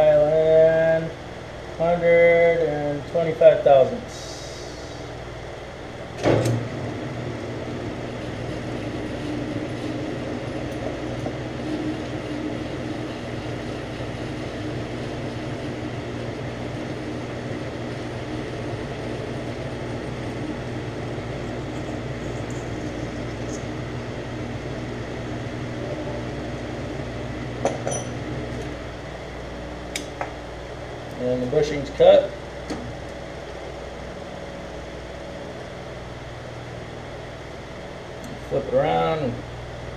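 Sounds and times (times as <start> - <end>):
metal lathe running: 1.4 - 39.9
click: 29.9 - 30.2.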